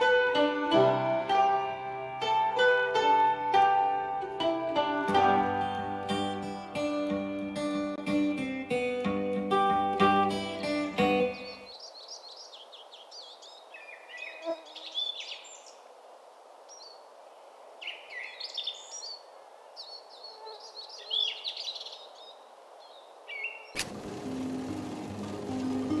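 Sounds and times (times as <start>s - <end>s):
faint outdoor hiss: 0.0s - 26.0s
songbirds chirping: 10.7s - 23.8s.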